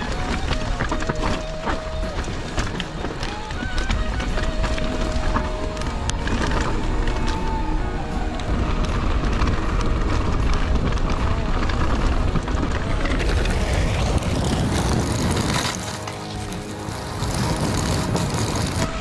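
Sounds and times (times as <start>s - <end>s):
bike rattling over rocky ground: 0.0s - 19.0s
bike tyres rolling on dirt: 0.0s - 19.0s
wind buffeting microphone: 0.0s - 19.0s.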